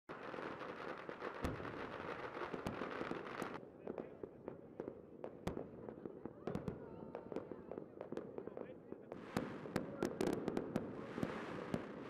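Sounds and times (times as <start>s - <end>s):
fireworks crackling: 0.1s - 3.6s, 9.1s - 12.0s
fireworks bangs: 0.1s - 4.1s, 6.4s - 12.0s.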